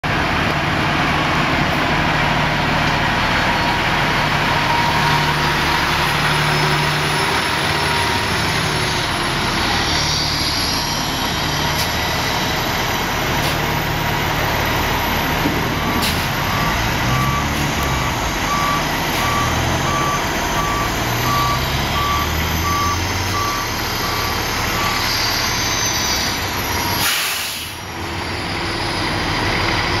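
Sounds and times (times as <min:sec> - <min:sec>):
diesel engine revving: 0:00.0 - 0:30.0
reverse alarm beeping: 0:14.6 - 0:27.3
short burst of hiss: 0:27.0 - 0:27.8.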